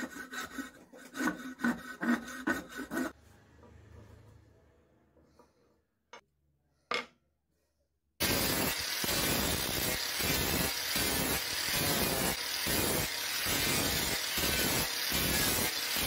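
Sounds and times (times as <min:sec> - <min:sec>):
angle grinder sanding wood: 0:00.0 - 0:03.2, 0:08.2 - 0:16.0.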